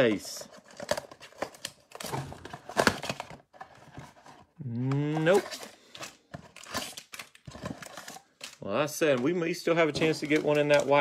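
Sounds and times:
plastic wrap crinkling and tearing: 4.6s - 11.0s.

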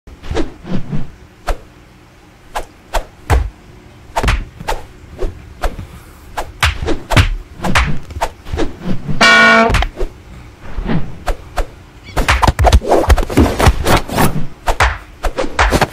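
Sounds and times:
sharp whacks and thumps: 2.6s - 3.5s, 4.2s - 4.8s, 6.5s - 10.0s, 12.2s - 15.9s.

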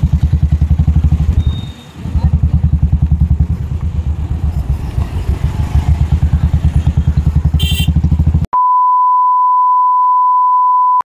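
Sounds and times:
brief high-pitched tone: 8.6s - 11.0s.

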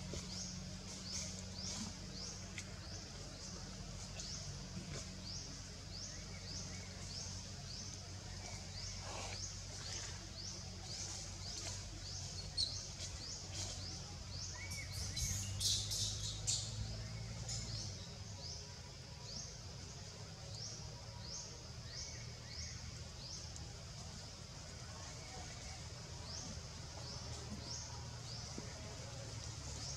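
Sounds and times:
low background rumble: 0.0s - 29.9s
bird chirping: 0.1s - 18.7s.

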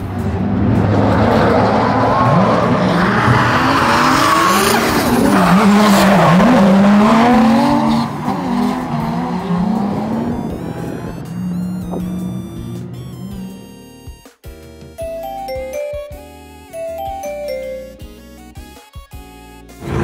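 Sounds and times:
car engines revving: 0.0s - 13.8s.

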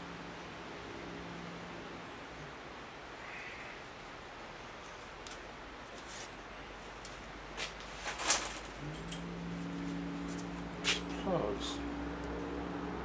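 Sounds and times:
low machine hum: 8.6s - 13.0s.

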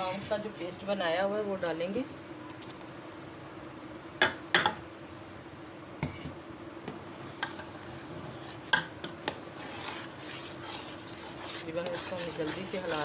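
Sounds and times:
soft swishing of stirring: 0.0s - 1.0s, 7.1s - 13.0s
faint steady hum: 0.0s - 13.0s.

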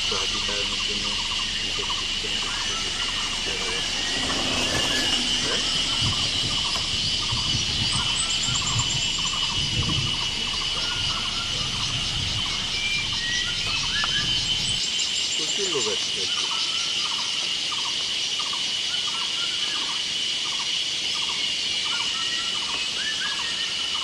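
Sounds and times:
short chirping call: 0.0s - 14.8s
distant voices murmuring: 0.0s - 17.2s
insects droning: 0.0s - 24.0s.

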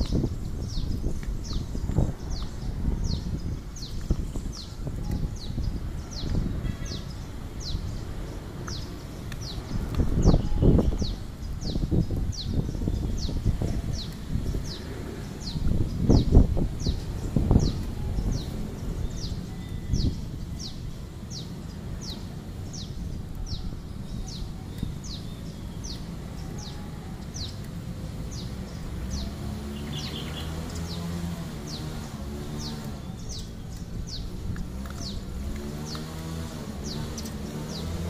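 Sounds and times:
bird chirping: 0.0s - 38.0s
low outdoor rumble: 0.0s - 38.0s.

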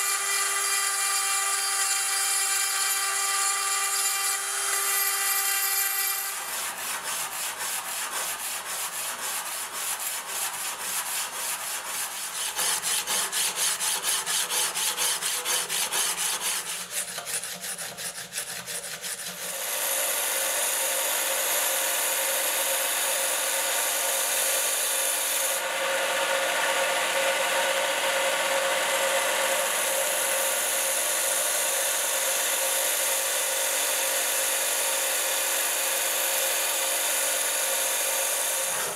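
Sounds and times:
belt grinder humming: 0.0s - 38.9s
rubbing strokes on knife blade: 6.4s - 19.4s.

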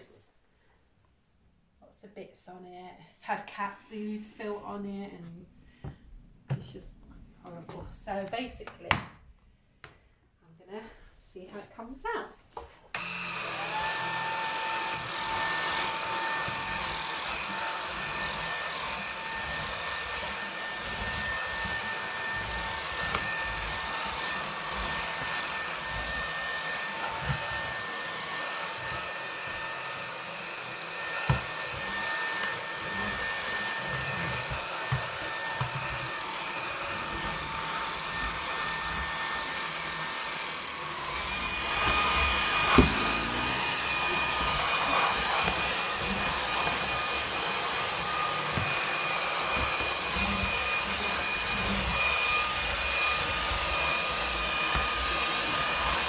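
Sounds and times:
vacuum cleaner motor whine: 12.9s - 56.0s.

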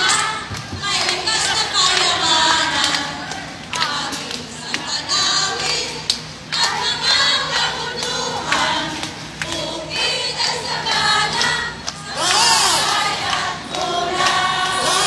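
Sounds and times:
crowd singing together: 0.0s - 15.0s
loud shrill sound: 12.2s - 13.0s.

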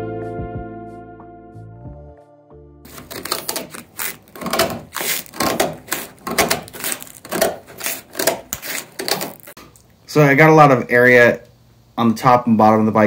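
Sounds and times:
scissors snipping cloth: 2.9s - 9.6s.

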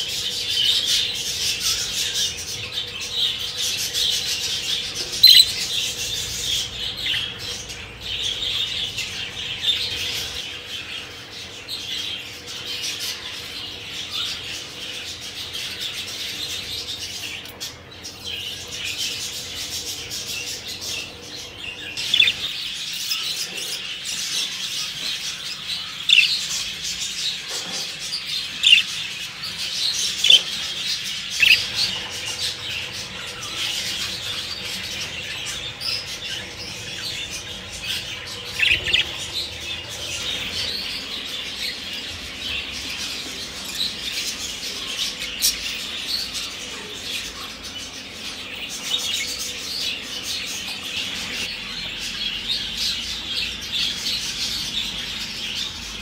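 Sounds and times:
budgerigars chattering and warbling: 0.0s - 56.0s
sharp bird chirps: 5.0s - 5.8s.

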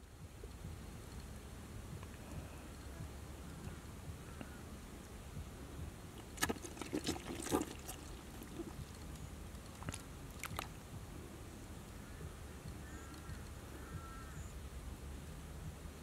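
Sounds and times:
small splashes in shallow water: 6.2s - 10.8s.

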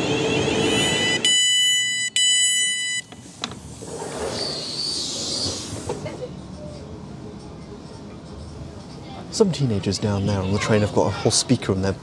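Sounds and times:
door gear hiss and whine: 3.0s - 6.1s.

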